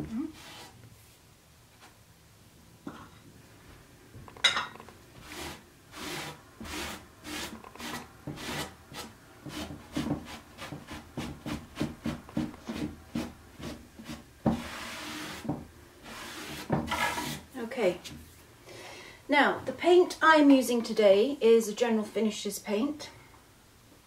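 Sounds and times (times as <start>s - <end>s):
sandpaper scraping: 0.3s - 0.8s, 5.2s - 17.4s.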